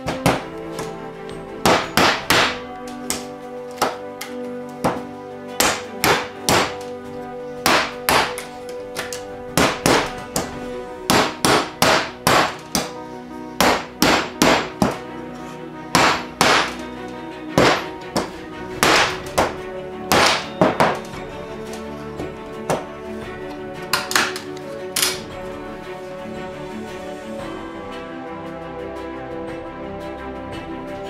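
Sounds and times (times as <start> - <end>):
mallet knocking plywood parts: 0.0 - 0.9, 1.6 - 6.9, 7.6 - 10.5, 11.1 - 13.0, 13.6 - 15.0, 15.9 - 16.8, 17.6 - 21.1, 22.7 - 22.9
background music with held notes: 0.0 - 31.0.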